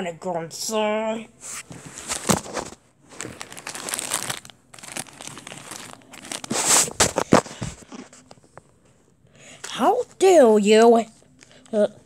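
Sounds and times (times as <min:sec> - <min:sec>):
plastic wrappers crinkling: 0:02.0 - 0:08.4.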